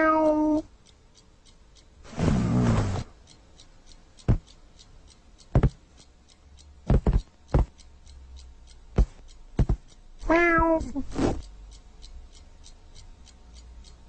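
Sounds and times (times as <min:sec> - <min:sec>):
fast faint ticking: 0:00.0 - 0:14.0
sharp taps: 0:04.2 - 0:04.6, 0:05.4 - 0:05.9, 0:06.8 - 0:07.9, 0:08.9 - 0:11.4.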